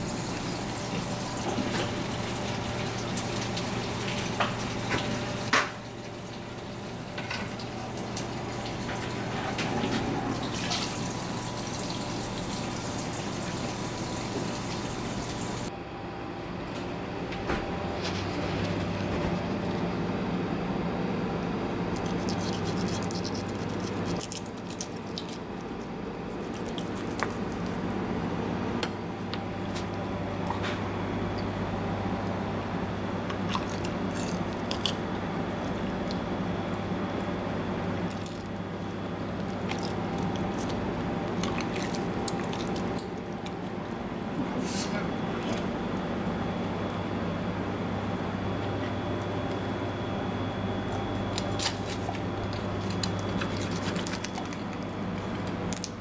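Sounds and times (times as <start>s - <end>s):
running and dripping water: 0.0s - 15.7s, 38.1s - 43.9s
steady low hum: 14.6s - 56.0s.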